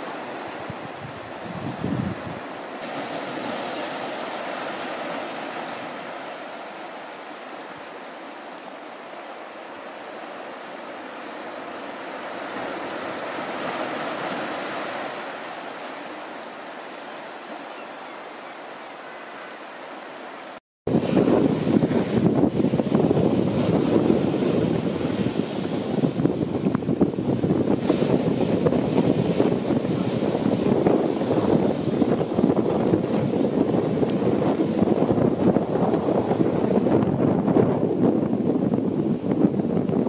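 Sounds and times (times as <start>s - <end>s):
wind buffeting microphone: 0.0s - 3.8s, 20.9s - 40.0s
open sea wash: 0.0s - 40.0s
surf: 0.0s - 40.0s
wind: 0.0s - 40.0s.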